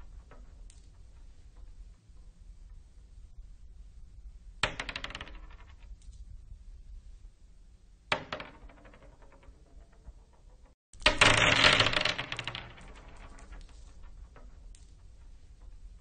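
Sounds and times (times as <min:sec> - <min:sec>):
marbles clattering on wooden floor: 0:04.6 - 0:05.9, 0:08.1 - 0:15.8.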